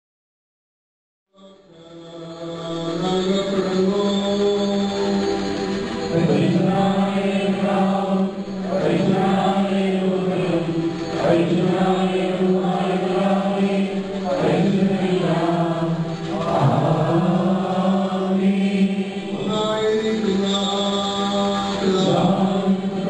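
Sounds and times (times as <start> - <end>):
voices singing a liturgical chant: 1.4 - 23.0.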